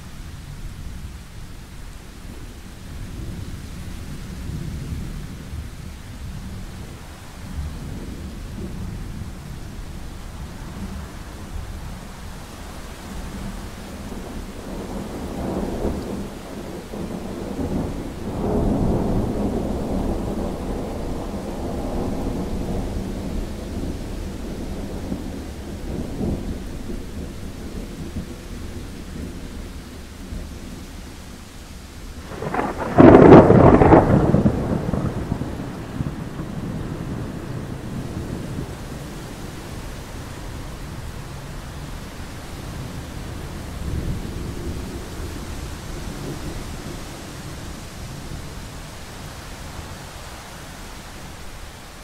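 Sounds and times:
steady rain: 0:00.0 - 0:52.0
thunder rumbling: 0:13.7 - 0:31.3, 0:32.0 - 0:49.8
loud thunderclap: 0:32.2 - 0:38.8.

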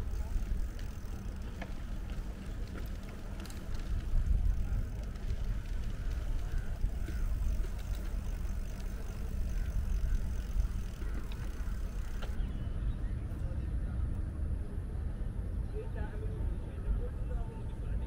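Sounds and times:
faint ticks: 0:00.0 - 0:12.4
bicycle tyres rolling on pavement: 0:00.0 - 0:17.3.

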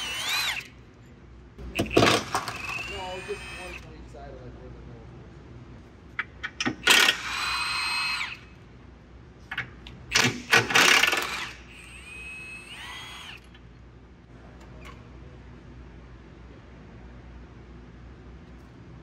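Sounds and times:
power drill whining: 0:00.0 - 0:00.8, 0:01.7 - 0:03.9, 0:06.8 - 0:08.4, 0:10.1 - 0:13.5.

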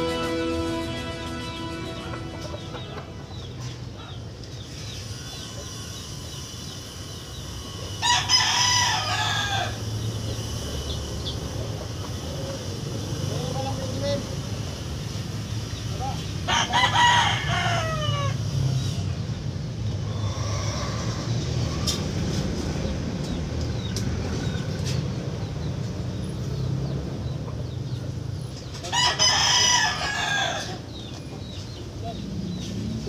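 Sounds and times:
steady low hum: 0:00.0 - 0:17.6
rooster crowing: 0:07.6 - 0:10.1, 0:16.4 - 0:18.6, 0:28.8 - 0:31.0.

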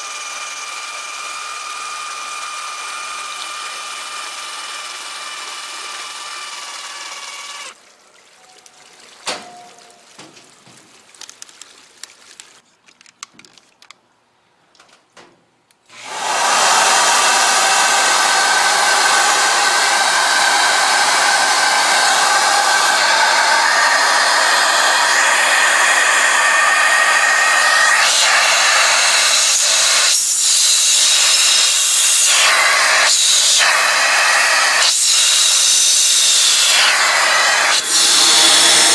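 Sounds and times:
machine hum: 0:15.9 - 0:29.3
water spraying onto rug: 0:16.2 - 0:38.9.

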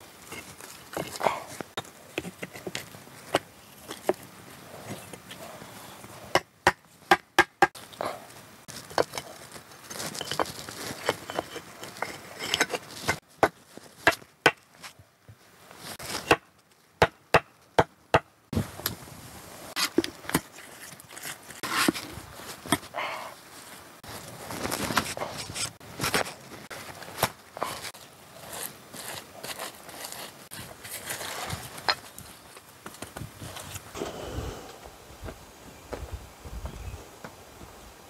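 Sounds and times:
stones scraping: 0:00.0 - 0:06.4, 0:08.6 - 0:15.0, 0:19.7 - 0:34.0
flat stones clacking together: 0:00.2 - 0:05.4, 0:08.7 - 0:14.7.

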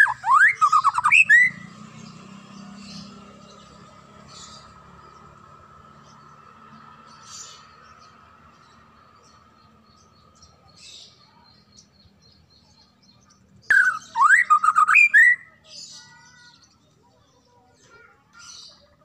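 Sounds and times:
bird singing whistled phrases: 0:00.0 - 0:01.7, 0:13.7 - 0:16.7
faint bird chirps: 0:00.0 - 0:05.4, 0:07.2 - 0:19.0.

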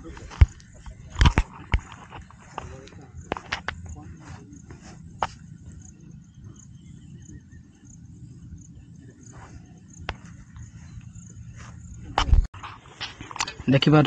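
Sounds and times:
steady low rumble: 0:00.0 - 0:13.1
faint high-pitched chirp: 0:04.8 - 0:12.1.

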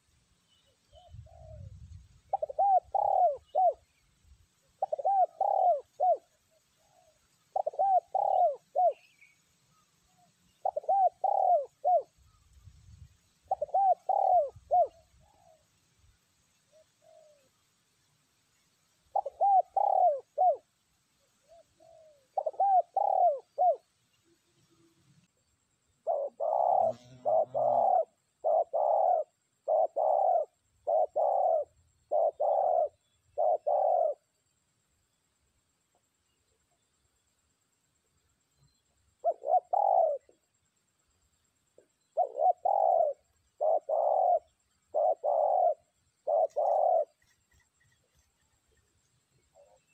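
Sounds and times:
dove cooing: 0:00.6 - 0:04.0, 0:04.7 - 0:09.4, 0:10.1 - 0:12.4, 0:13.4 - 0:15.7, 0:16.7 - 0:17.6, 0:19.1 - 0:20.7, 0:21.4 - 0:23.9, 0:26.0 - 0:34.3, 0:39.1 - 0:40.5, 0:41.8 - 0:48.2.

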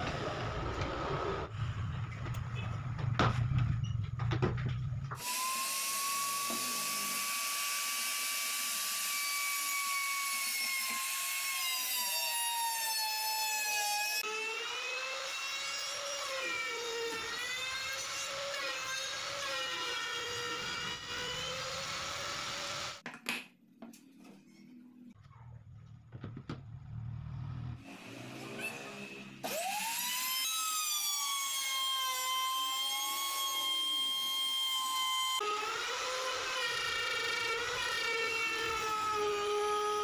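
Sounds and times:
router cutting plywood hiss: 0:05.2 - 0:08.8
wood router motor whine: 0:05.2 - 0:23.0, 0:27.8 - 0:40.0.

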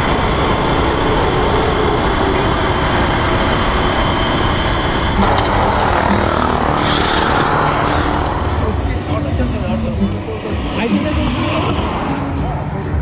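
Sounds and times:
motorcycle engine at speed: 0:00.0 - 0:09.0
other motorbikes passing close: 0:00.0 - 0:12.6.

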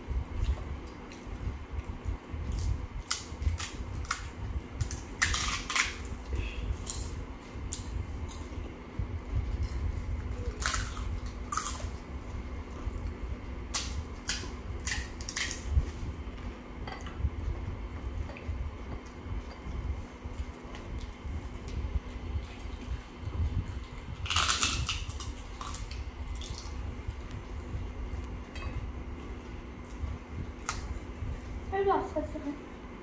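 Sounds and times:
steady low hum: 0:00.0 - 0:33.0
crisp shells cracking and crunching: 0:02.6 - 0:08.4, 0:10.5 - 0:12.0, 0:13.7 - 0:15.7, 0:24.2 - 0:26.8.

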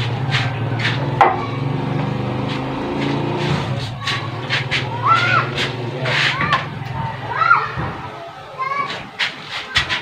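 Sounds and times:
engine running steadily: 0:00.0 - 0:07.4.

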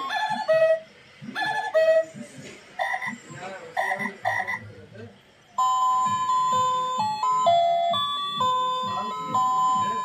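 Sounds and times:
frogs croaking: 0:03.8 - 0:04.6
simple electronic tune: 0:05.6 - 0:10.0.

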